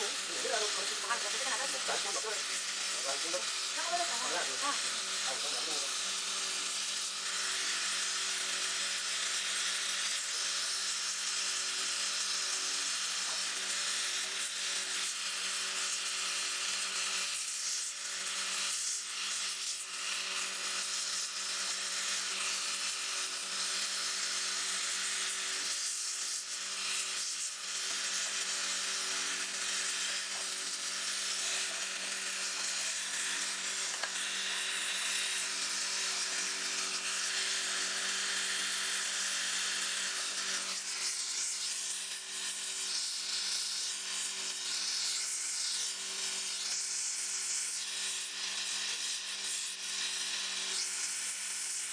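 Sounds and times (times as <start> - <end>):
torch flame hissing: 0.0 - 7.1, 27.2 - 39.0.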